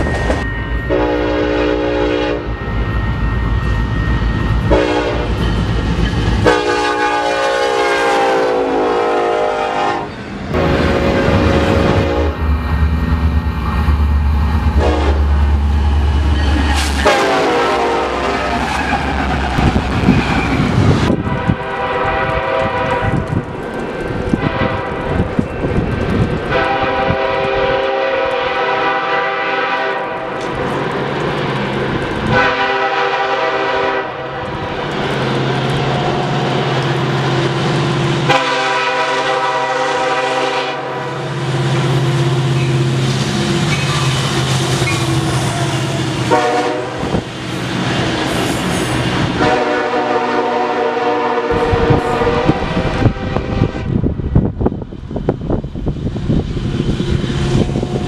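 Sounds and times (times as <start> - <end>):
locomotive engine humming: 0.0 - 58.0
train wheels rumbling on rails: 0.0 - 58.0
locomotive air horn blasts: 0.9 - 2.5, 4.6 - 5.4, 6.4 - 12.5, 14.8 - 15.4, 16.9 - 18.6, 21.2 - 23.3, 24.4 - 25.1, 26.5 - 30.4, 32.3 - 34.4, 38.2 - 41.2, 45.2 - 47.2, 49.3 - 53.9.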